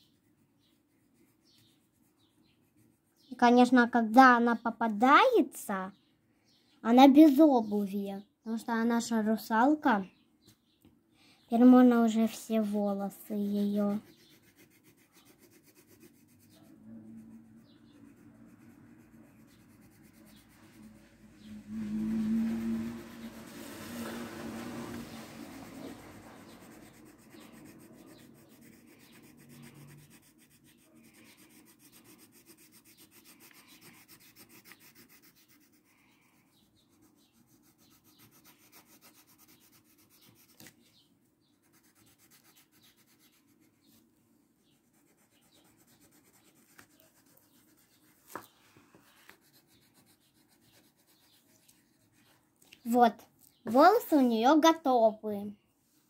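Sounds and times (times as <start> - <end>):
pencil scratching on paper: 0.0 - 3.8, 11.6 - 44.0, 44.6 - 53.0.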